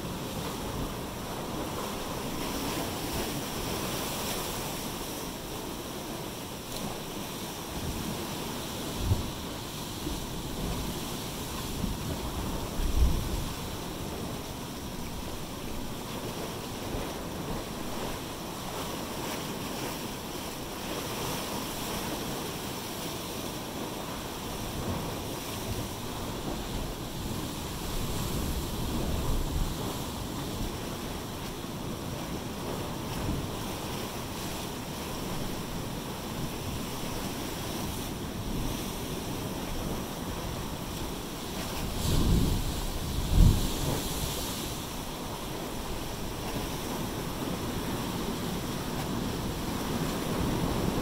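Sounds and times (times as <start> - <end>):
surf washing over rocks: 0.0 - 51.0.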